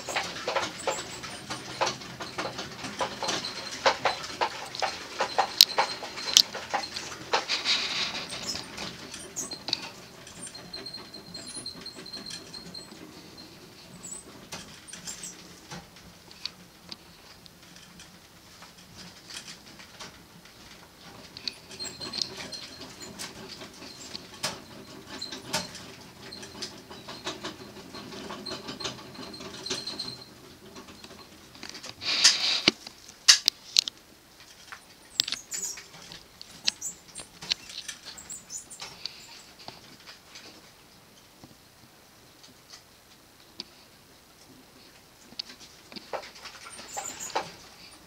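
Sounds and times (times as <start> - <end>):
rodents rustling in bedding: 0.0 - 17.4.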